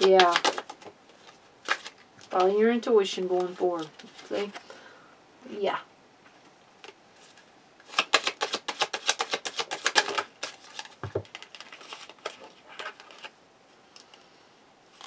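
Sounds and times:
cards clicking in hands: 0:00.0 - 0:00.9, 0:07.9 - 0:13.3.

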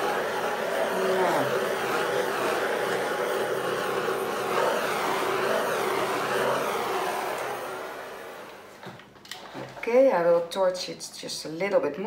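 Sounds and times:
gas torch roaring: 0:00.0 - 0:09.2.

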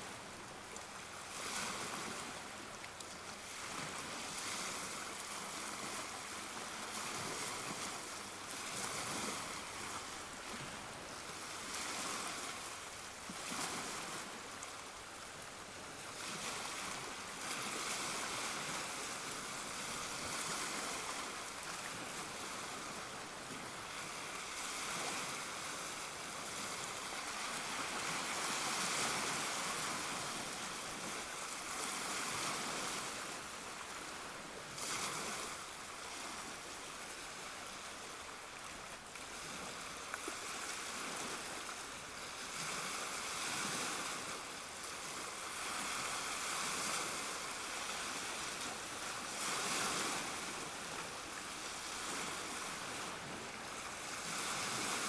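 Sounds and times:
waves lapping against boulders: 0:00.0 - 0:55.0.

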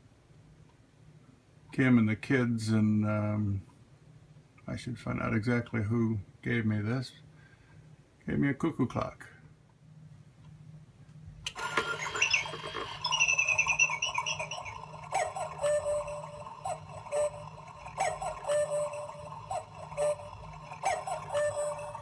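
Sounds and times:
clock mechanism clicking and whirring: 0:11.5 - 0:22.0
cuckoo clock bird calls: 0:11.6 - 0:22.0.

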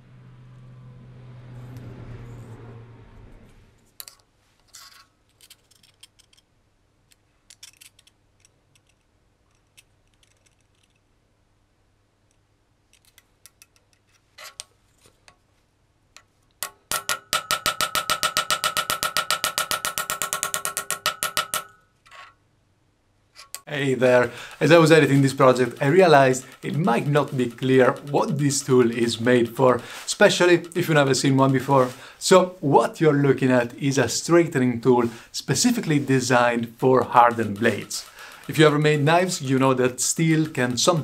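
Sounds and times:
hammer tapping metal blade: 0:16.6 - 0:21.8, 0:23.4 - 0:32.0, 0:35.6 - 0:41.0.

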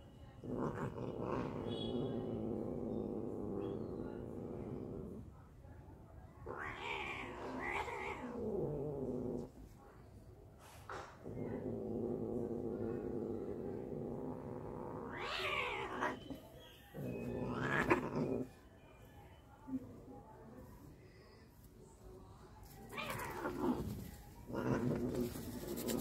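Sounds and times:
cat growling: 0:00.4 - 0:05.4, 0:06.4 - 0:09.6, 0:11.2 - 0:16.4, 0:17.0 - 0:18.6, 0:22.9 - 0:26.0
cats yowling: 0:06.5 - 0:08.5, 0:14.9 - 0:16.4.

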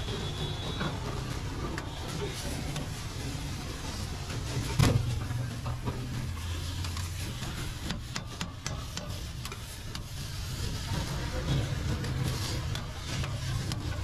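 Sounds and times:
metal scraper on steel griddle: 0:03.8 - 0:14.0.

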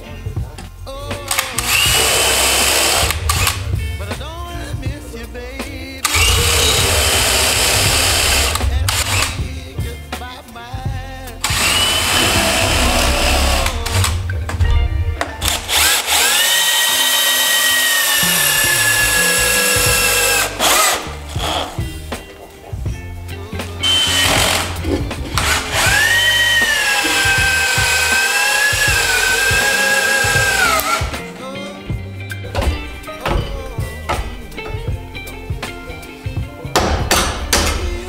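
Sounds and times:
cordless drill boring into wood: 0:01.3 - 0:03.6, 0:06.0 - 0:09.4, 0:11.4 - 0:14.2, 0:15.4 - 0:21.8, 0:23.8 - 0:24.8, 0:25.4 - 0:31.1.

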